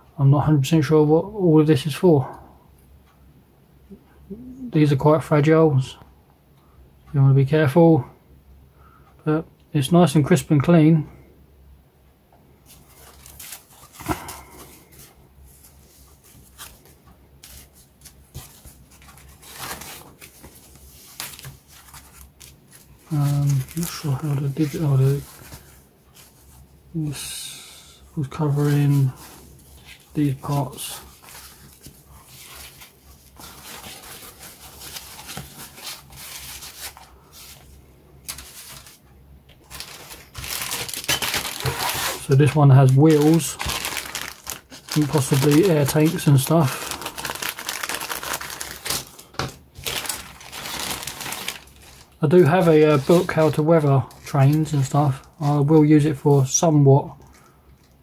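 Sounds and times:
foam packing sheet rustling: 12.6 - 27.5, 28.2 - 39.0, 39.6 - 55.7.

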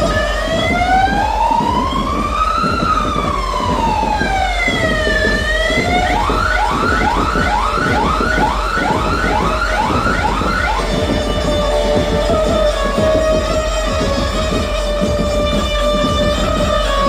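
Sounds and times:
siren wailing and yelping: 0.0 - 13.2
dense low din: 0.0 - 17.0.

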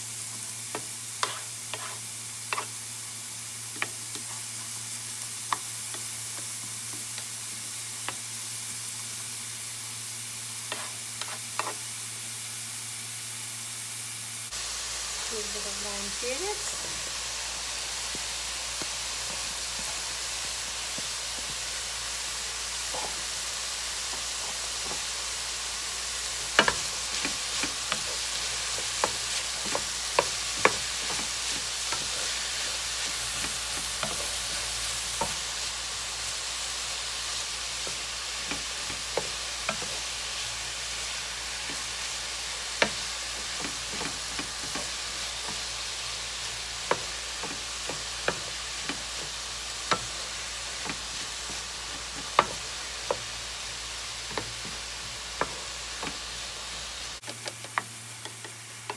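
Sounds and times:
vegetables sizzling in oil: 0.0 - 58.9
wooden spatula scraping a pan: 1.2 - 2.8, 3.8 - 4.8, 10.7 - 11.8, 22.8 - 23.3.

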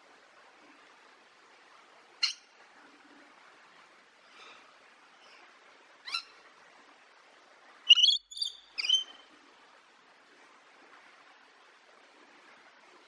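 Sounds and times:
parrot high-pitched calls: 6.1 - 6.3, 7.9 - 9.2.

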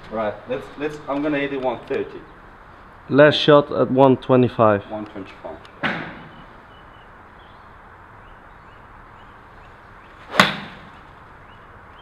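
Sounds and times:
faint background hiss: 0.0 - 12.0
golf club striking ball: 10.3 - 11.1.

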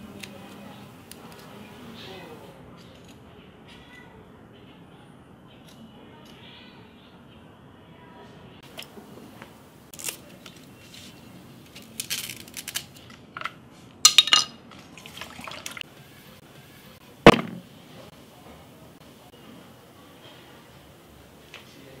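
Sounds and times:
water splashing in a plastic bowl: 14.8 - 15.8
sharp knock: 17.3 - 17.6.

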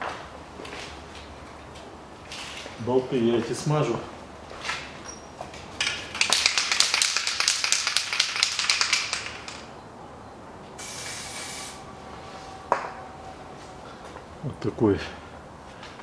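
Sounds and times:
aerosol can spraying: 10.8 - 11.8.

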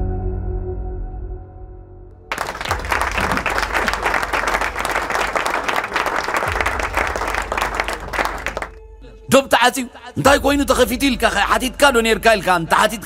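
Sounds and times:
audience applause: 2.3 - 8.7
soft ambient music: 4.2 - 13.0.

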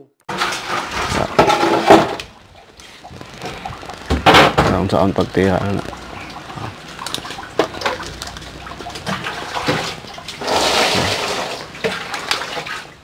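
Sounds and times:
rush of water: 2.8 - 13.0.

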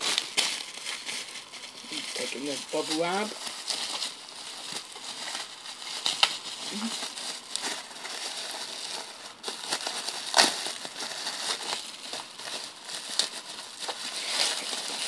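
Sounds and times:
bubble wrap crinkling: 0.0 - 15.0.

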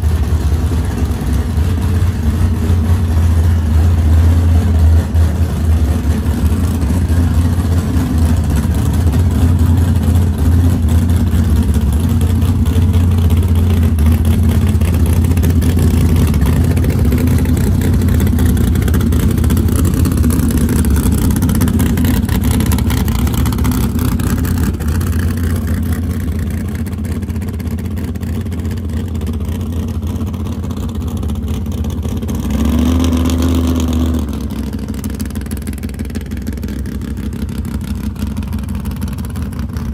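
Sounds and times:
truck engine running at low revs: 0.0 - 39.9
engine revving: 32.1 - 35.2.

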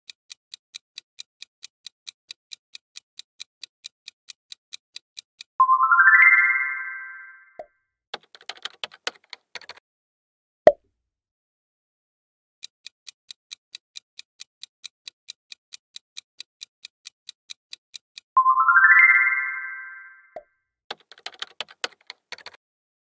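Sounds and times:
clock ticking: 0.1 - 5.6, 8.2 - 9.8, 12.6 - 18.4, 20.9 - 22.6
loud rising chime: 5.6 - 7.5, 18.4 - 20.2
keyboard typing clicks: 8.2 - 9.8, 20.9 - 22.6.

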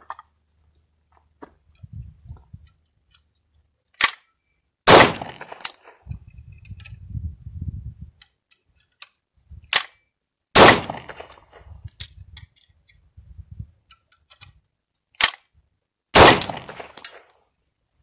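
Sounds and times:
gun handling clicks: 3.9 - 4.3, 5.2 - 5.9, 8.2 - 10.0, 13.8 - 14.6, 15.2 - 15.5, 16.2 - 17.3
gunshots with echo: 4.9 - 5.6, 10.6 - 11.3, 16.2 - 17.0.

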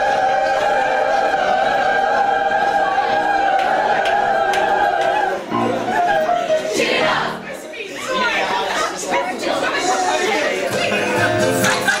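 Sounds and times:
group shouting and whooping: 0.0 - 7.4
choir holding a chord: 0.0 - 7.5.

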